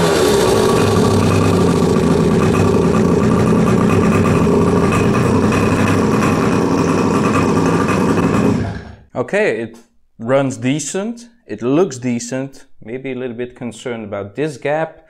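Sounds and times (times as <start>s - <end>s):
small two-stroke engine idling: 0.0s - 9.1s.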